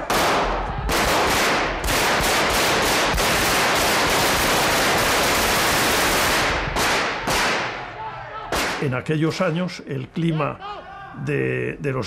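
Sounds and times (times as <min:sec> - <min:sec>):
automatic gunfire echoing in hall: 0:00.0 - 0:07.8.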